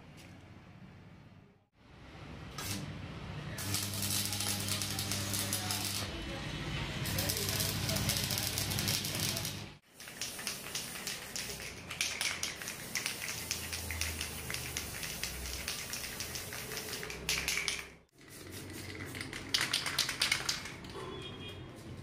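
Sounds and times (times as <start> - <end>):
spray paint can hissing in bursts: 3.6 - 6.1, 7.0 - 20.8.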